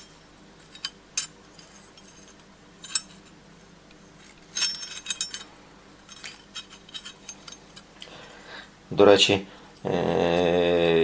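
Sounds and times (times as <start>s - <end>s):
iron ring and hook clinking: 0.7s - 3.2s, 4.5s - 5.5s.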